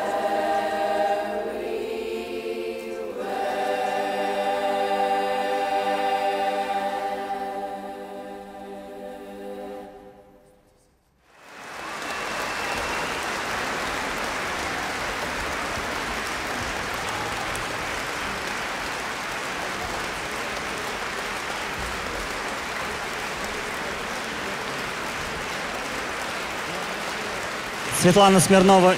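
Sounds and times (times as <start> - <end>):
audience applause: 11.3 - 28.9.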